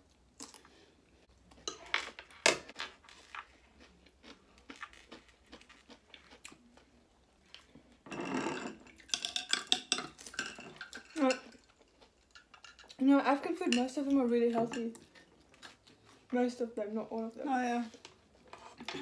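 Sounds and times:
chewing: 2.7 - 8.0, 14.9 - 16.3.

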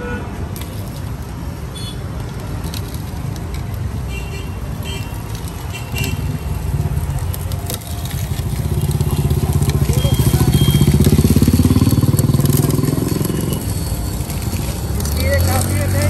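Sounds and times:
electric juicer crushing sugarcane: 6.2 - 16.0.

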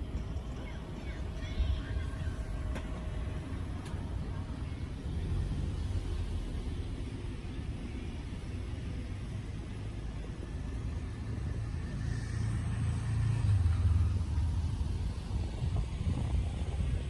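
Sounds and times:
passing vehicle rumble: 0.0 - 17.0.

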